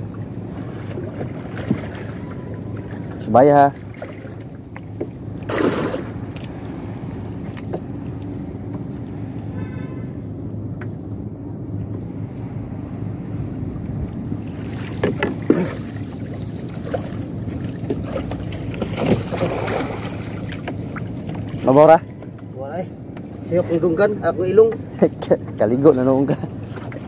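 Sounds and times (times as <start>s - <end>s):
steady low hum: 0.0s - 27.0s
net splashing and rustling: 5.4s - 6.9s, 14.5s - 21.2s.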